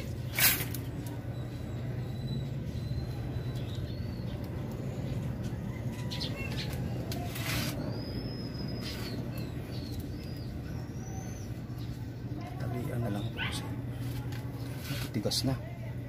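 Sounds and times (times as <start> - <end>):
wire wrapping rustles: 0.0 - 1.2, 6.6 - 7.8, 13.9 - 15.4
small birds chirping: 0.0 - 15.6
steady low hum: 0.0 - 16.0.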